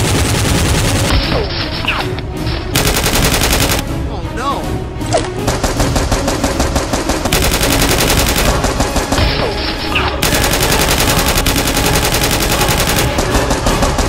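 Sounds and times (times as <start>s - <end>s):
automatic gunfire: 2.8s - 3.8s, 5.4s - 9.4s, 10.2s - 14.0s.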